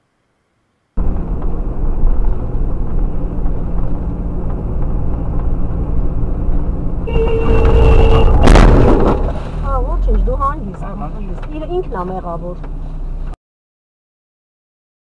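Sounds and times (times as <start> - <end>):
car engine and road rumble: 1.0 - 13.4
car horn: 7.0 - 8.9.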